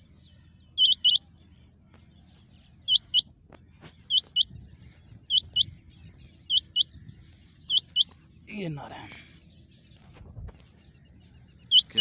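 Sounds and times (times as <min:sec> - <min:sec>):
quail calling: 0:00.7 - 0:01.3, 0:02.8 - 0:03.3, 0:04.1 - 0:05.8, 0:06.4 - 0:08.2, 0:11.6 - 0:12.0.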